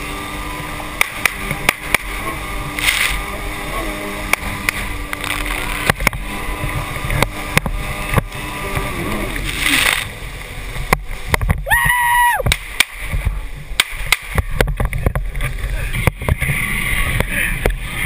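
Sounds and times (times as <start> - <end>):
water spraying and splashing: 0.0 - 17.9
jet ski engine running: 0.0 - 18.0.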